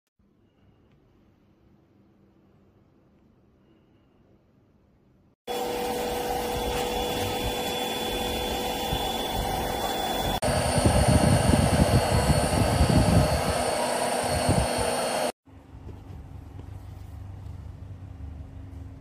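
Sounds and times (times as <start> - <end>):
vacuum pushed across tiled floor: 5.5 - 15.3
vacuum cleaner motor whine: 5.5 - 15.4.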